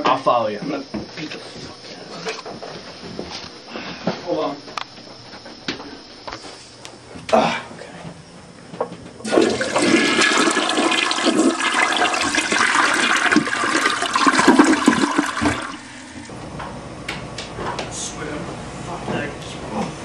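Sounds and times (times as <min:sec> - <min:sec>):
toilet flushing: 0:09.2 - 0:16.3.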